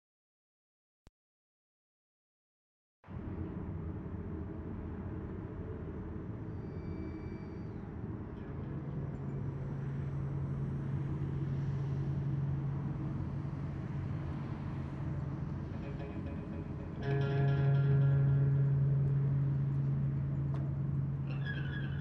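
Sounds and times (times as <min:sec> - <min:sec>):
low steady rumble: 0:03.1 - 0:22.0
deep steady hum: 0:08.4 - 0:22.0.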